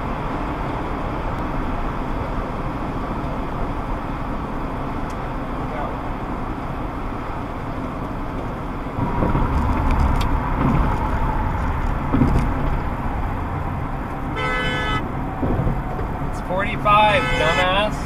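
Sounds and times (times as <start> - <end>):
tyre and engine rumble: 0.0 - 18.0
car horn: 14.3 - 15.1, 16.8 - 18.0.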